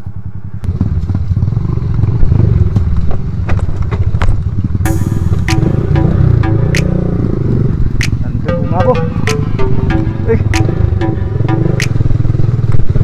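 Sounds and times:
motorcycle engine running: 0.2 - 13.0.

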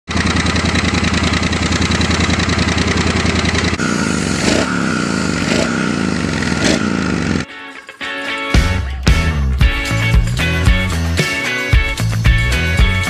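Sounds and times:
engine throttle blips: 0.1 - 7.5
motorcycle engine idling: 0.1 - 7.5.

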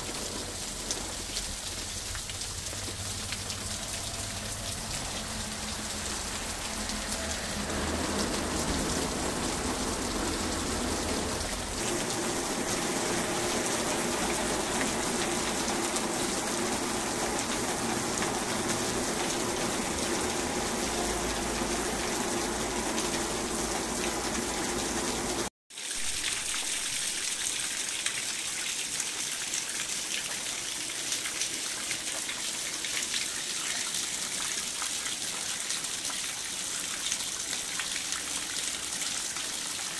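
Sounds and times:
heavy rain pouring: 0.0 - 27.2
water streaming off roof: 0.0 - 39.9.

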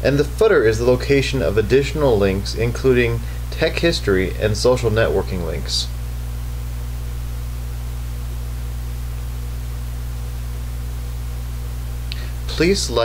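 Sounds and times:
electrical mains hum: 0.0 - 13.0
even hiss: 10.4 - 13.0.

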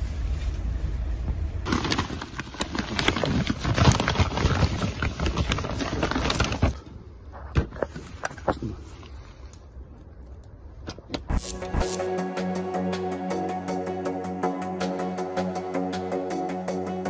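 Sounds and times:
plastic bag crinkling: 1.7 - 6.9.

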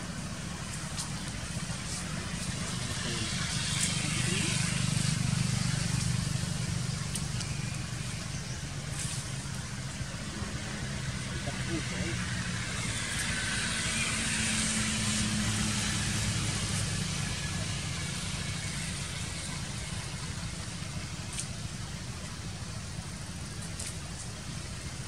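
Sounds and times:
vehicle engine humming: 0.0 - 25.0.

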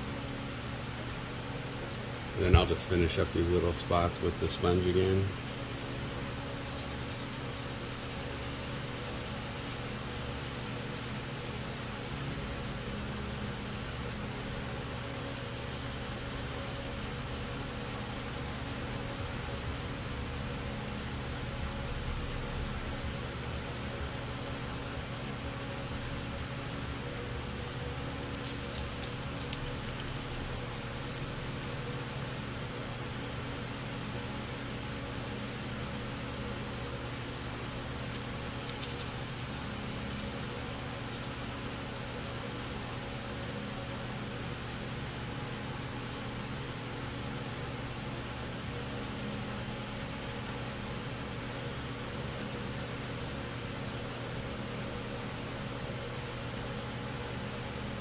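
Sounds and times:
steady low hum: 0.0 - 58.0
sanding sponge rubbing: 4.6 - 12.8, 13.5 - 25.1, 25.7 - 27.0, 28.0 - 45.0.

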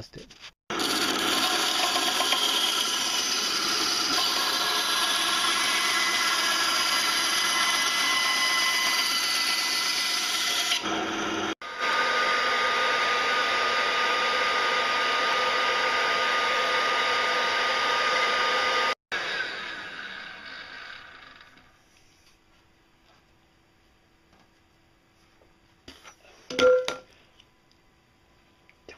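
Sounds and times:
bandsaw cutting pipe: 0.7 - 21.7.

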